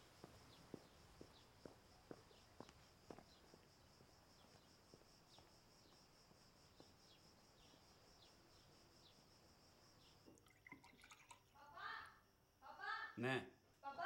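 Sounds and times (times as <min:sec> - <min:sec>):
high insect drone: 0:00.0 - 0:10.3.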